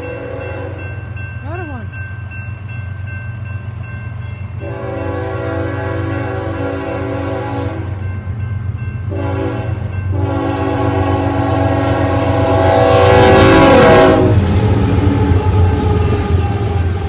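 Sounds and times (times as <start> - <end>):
locomotive air horn blasts: 0.0 - 0.8, 4.6 - 8.0, 9.1 - 15.8
locomotive engine and wheels rumbling: 0.0 - 17.0.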